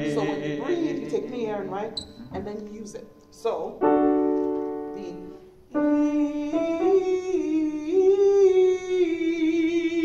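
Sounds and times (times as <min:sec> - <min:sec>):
person singing vocal warm-up: 0:00.0 - 0:02.4, 0:05.1 - 0:10.0
piano chord: 0:03.7 - 0:07.3.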